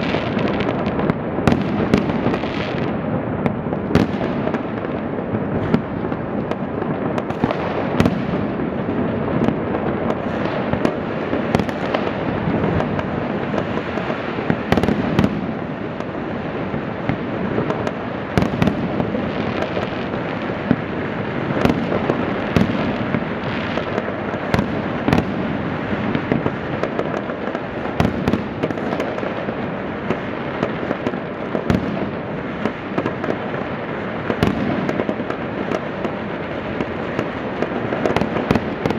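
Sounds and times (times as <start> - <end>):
fireworks crackle and rumble: 0.0 - 38.9
fireworks sharp bangs: 0.0 - 38.9.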